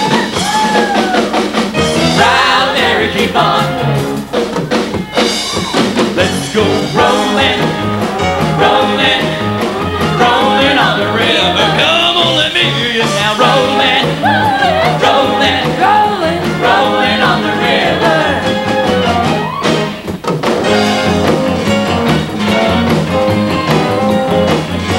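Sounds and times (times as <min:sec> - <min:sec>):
live rock and roll band: 0:00.0 - 0:24.9
male and female singers: 0:02.2 - 0:04.0, 0:06.2 - 0:09.4, 0:10.0 - 0:18.9.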